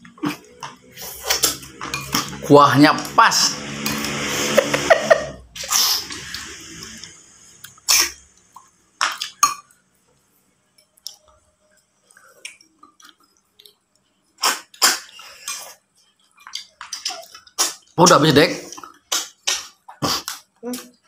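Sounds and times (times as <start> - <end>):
people slurping food: 0.0 - 2.5, 3.3 - 8.7, 18.6 - 20.4.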